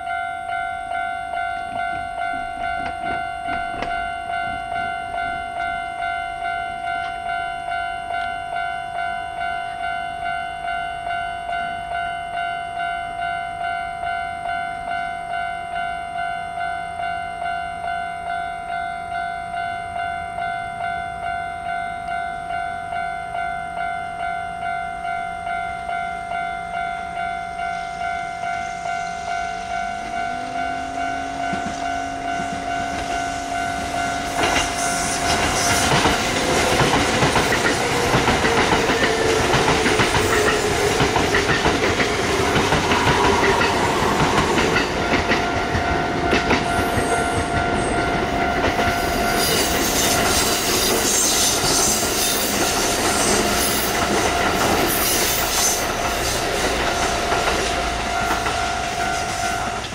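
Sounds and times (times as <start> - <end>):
crossing warning bell ringing: 0.0 - 59.9
train wheels clattering: 1.5 - 4.8, 28.8 - 59.9.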